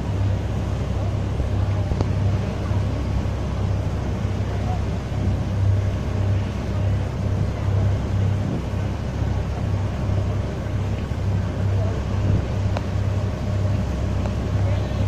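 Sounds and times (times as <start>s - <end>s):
boat engine droning: 0.0s - 15.0s
hiss of wind and water: 0.0s - 15.0s.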